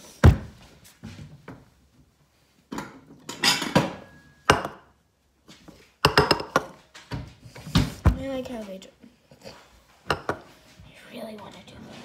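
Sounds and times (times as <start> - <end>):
ceramic bowl clattering: 10.0 - 10.5.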